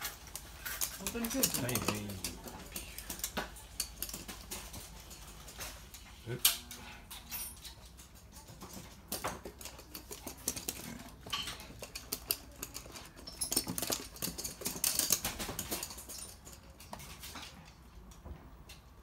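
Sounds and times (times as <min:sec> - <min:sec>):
dog claws clicking on hard floor: 0:00.0 - 0:06.0, 0:07.4 - 0:17.8.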